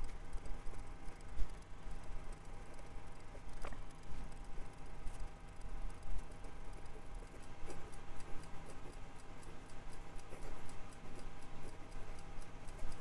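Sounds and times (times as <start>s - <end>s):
fountain pen scratching on paper: 6.2s - 13.0s.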